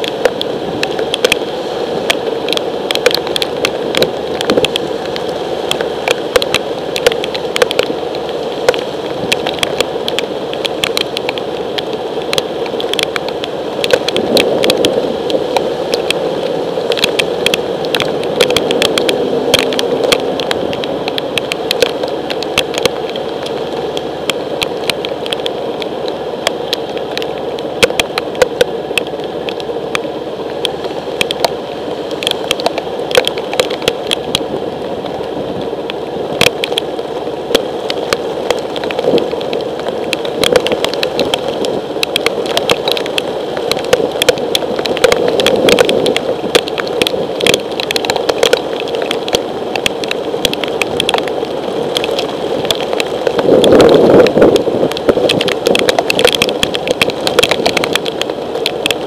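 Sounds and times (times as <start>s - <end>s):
heavy rain on a camera: 0.0s - 59.0s
raindrops clicking on housing: 0.0s - 59.0s.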